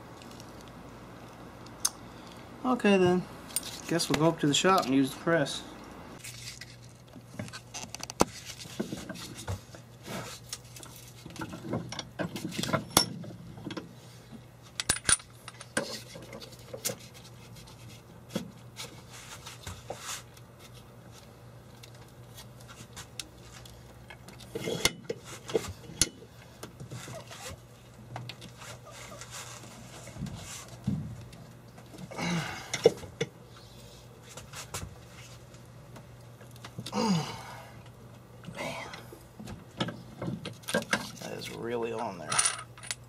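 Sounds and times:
steady low hum: 0.0 - 43.0
metal parts clinking and scraping: 3.5 - 3.9, 14.7 - 16.6, 42.1 - 43.0.

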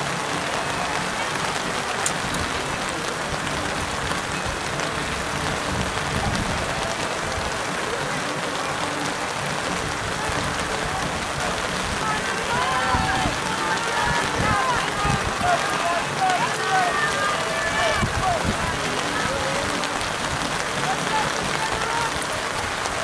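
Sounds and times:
steady rain falling: 0.0 - 23.0.

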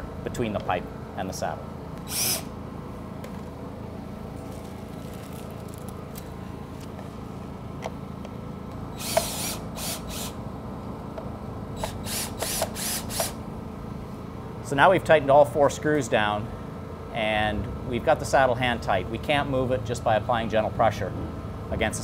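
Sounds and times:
cordless drill driving screws: 2.0 - 2.5, 9.0 - 10.4, 11.8 - 13.4.

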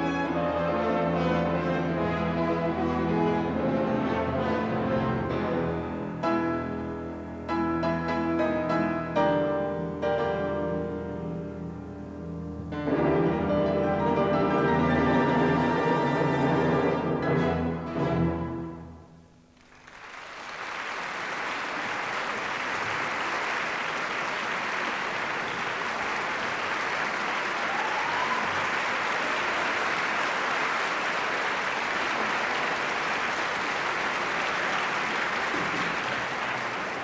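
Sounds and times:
audience applause: 19.6 - 37.0.

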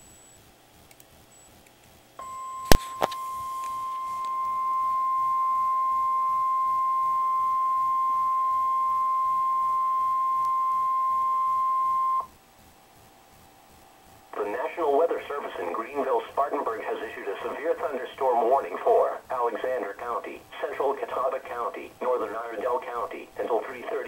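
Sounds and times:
high alarm tone: 2.2 - 12.3.

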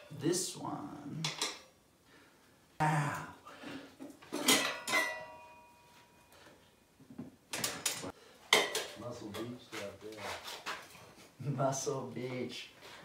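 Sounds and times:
metal tools clanking on wheel rim: 4.2 - 6.0.

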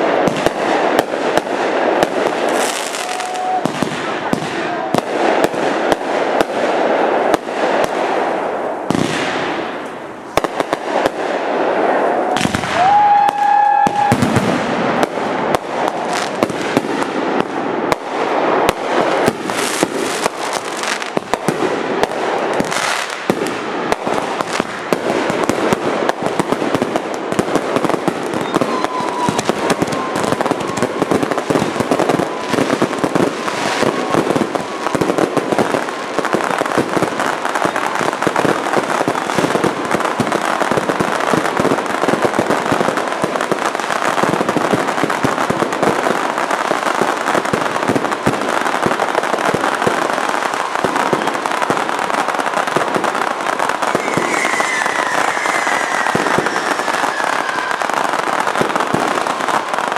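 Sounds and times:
fireworks bangs and crackles: 0.0 - 59.9
high firework whistle: 2.4 - 5.0, 11.9 - 14.5, 27.8 - 36.8, 53.8 - 59.8.

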